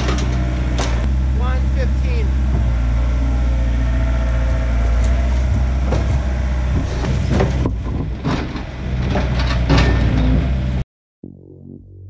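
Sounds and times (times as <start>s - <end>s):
excavator engine running: 0.0s - 10.8s
wooden log knocks and clunks: 5.4s - 8.7s.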